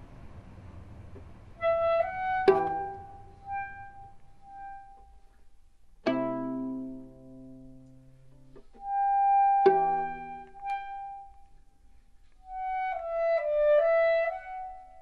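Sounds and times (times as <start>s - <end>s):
plucked strings: 0.0s - 11.7s
held woodwind notes: 1.5s - 5.5s, 8.6s - 15.0s.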